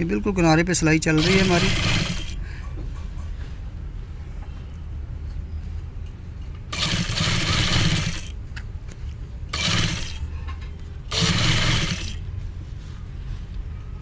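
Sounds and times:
sewing machine stitching: 1.2s - 2.4s, 6.7s - 8.3s, 9.5s - 10.2s, 11.1s - 12.2s.

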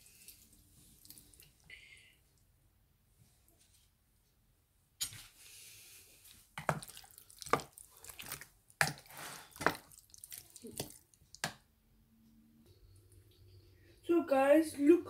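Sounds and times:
hand squelching chicken in marinade: 6.6s - 11.5s.

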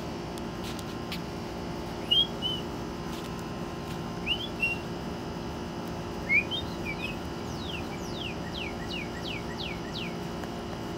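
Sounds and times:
cardinal singing whistles: 2.0s - 2.6s, 4.2s - 4.8s, 6.2s - 10.2s.

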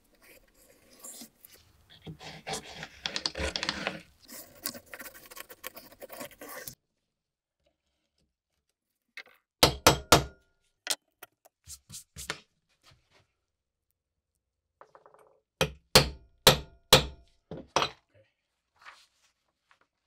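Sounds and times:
scratchy rubbing on paper: 0.1s - 6.8s.

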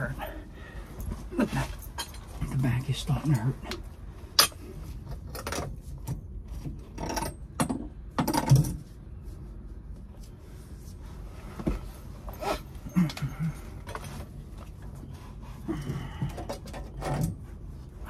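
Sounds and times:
gloved hands handling pipe: 8.7s - 18.0s.

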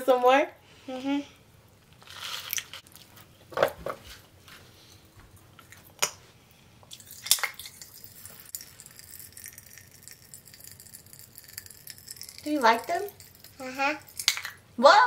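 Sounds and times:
popping candy pops: 6.9s - 14.6s.

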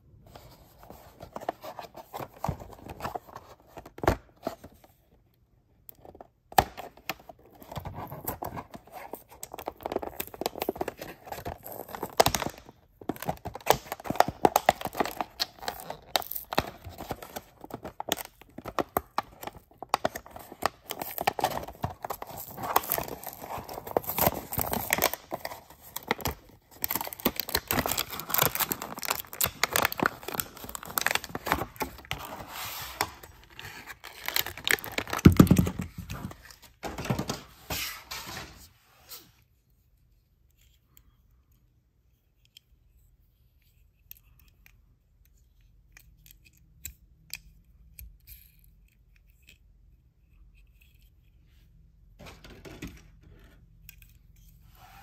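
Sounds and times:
plastic blister crinkling: 8.0s - 35.8s.

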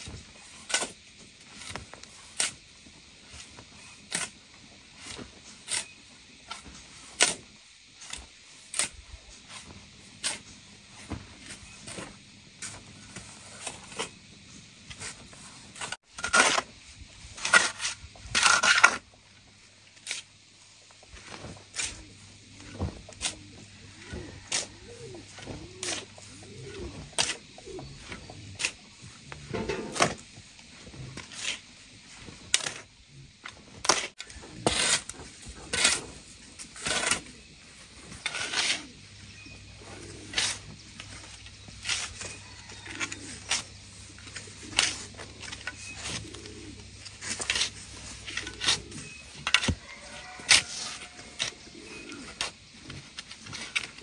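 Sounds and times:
metal spade scraping sand: 0.0s - 14.2s, 14.9s - 19.2s, 19.8s - 32.9s, 33.8s - 54.0s.

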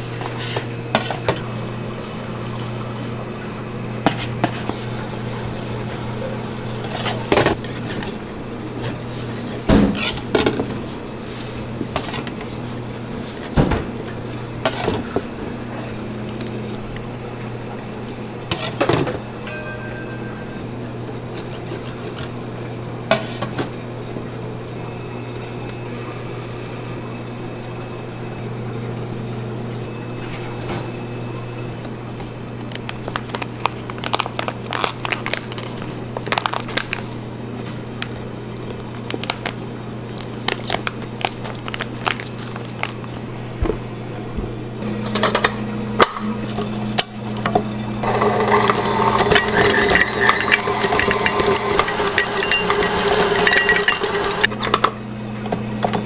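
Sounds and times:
low hum: 19.3s - 21.4s
crisp clicks and rustles of wrapper: 32.6s - 43.2s
stand mixer whirring: 47.2s - 54.5s.

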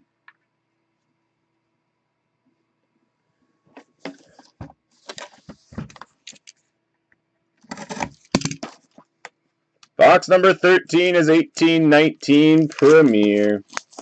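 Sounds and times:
plastic wrap crackling and tearing: 12.6s - 14.0s.

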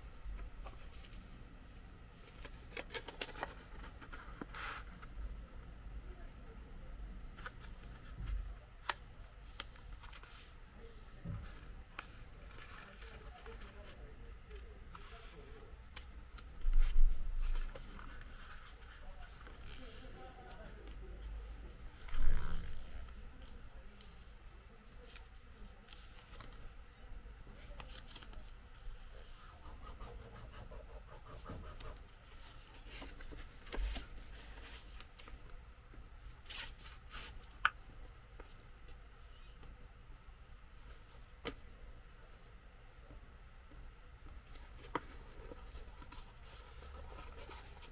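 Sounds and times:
paper crinkling and creasing: 2.2s - 5.1s, 11.4s - 21.3s, 27.5s - 29.4s, 44.4s - 47.9s
paper rustle: 2.2s - 5.1s.

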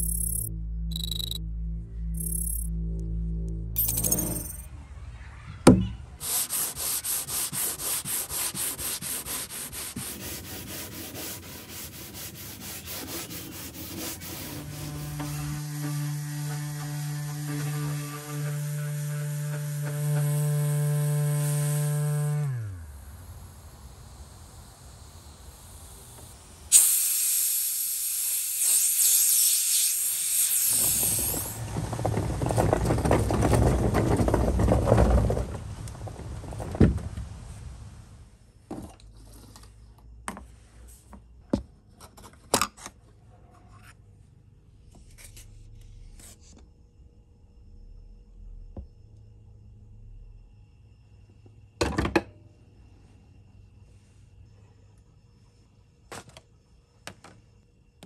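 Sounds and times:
electric sander running: 9.3s - 25.4s
loud hiss: 22.8s - 31.6s.

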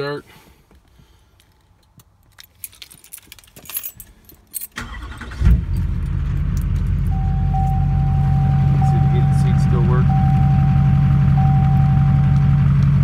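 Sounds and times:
keys jingling: 1.5s - 6.2s
diesel engine starting and idling: 4.8s - 13.0s.

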